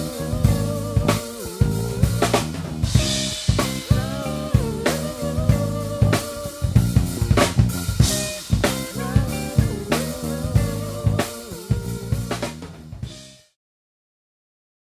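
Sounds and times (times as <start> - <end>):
band playing instrumental music: 0.0 - 13.4
snare and bass drum hits: 6.9 - 9.0.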